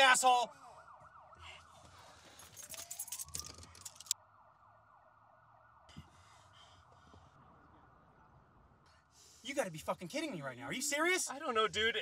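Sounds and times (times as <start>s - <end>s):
siren wail: 0.0s - 9.1s
faint police siren yelp: 0.0s - 12.0s
car keys rattling: 2.1s - 4.2s.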